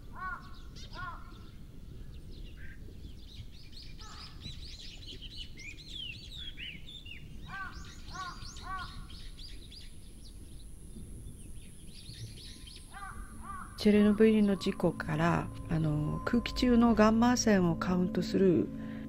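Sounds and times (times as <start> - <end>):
small birds chirping: 0.0 - 19.0
crow cawing: 0.1 - 1.4, 7.5 - 9.0, 12.9 - 14.3
low background rumble: 7.7 - 19.0.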